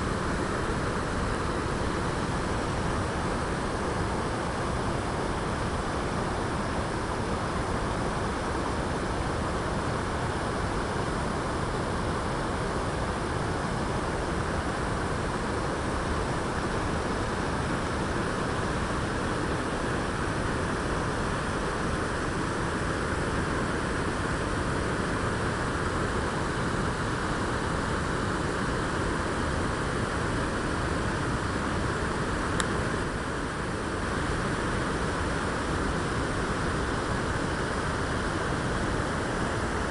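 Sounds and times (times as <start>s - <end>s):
river water rushing over rapids: 0.0s - 39.9s.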